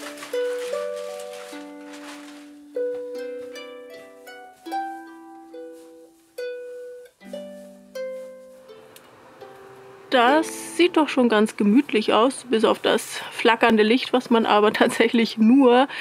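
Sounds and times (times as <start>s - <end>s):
harp music: 0.0s - 11.3s.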